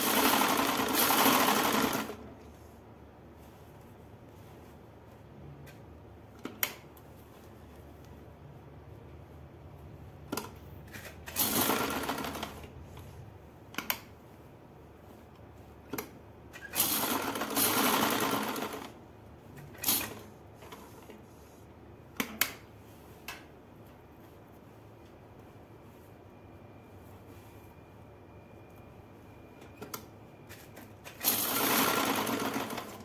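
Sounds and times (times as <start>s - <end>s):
sewing machine stitching: 0.0s - 2.3s, 10.4s - 13.0s, 16.5s - 19.0s, 19.6s - 21.1s, 31.0s - 33.0s.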